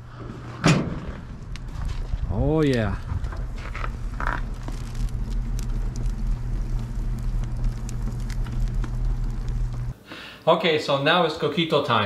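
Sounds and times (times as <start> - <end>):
logs crackling in fire: 0.0 - 10.0
boiler humming: 1.2 - 10.0.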